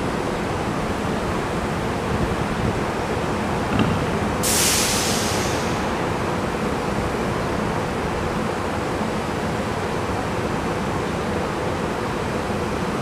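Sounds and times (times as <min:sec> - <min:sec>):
burst of hiss: 0:04.4 - 0:05.9.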